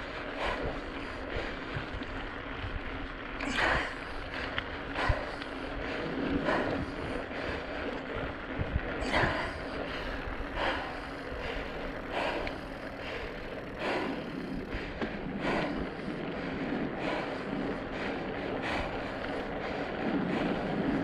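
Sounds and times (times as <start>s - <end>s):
bicycle road noise: 0.0s - 21.0s
rider breathing hard: 0.0s - 21.0s
wind noise: 0.0s - 21.0s.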